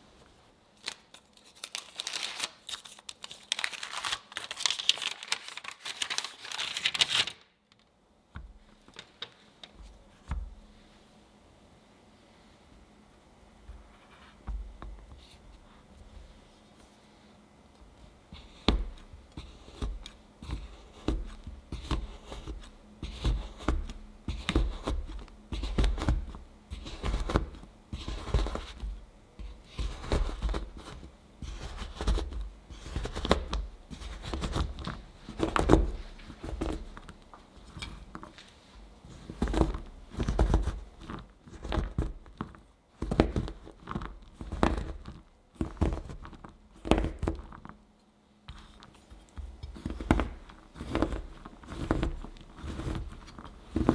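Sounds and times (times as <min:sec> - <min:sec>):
knife chopping chocolate on board: 0:18.4 - 0:28.8.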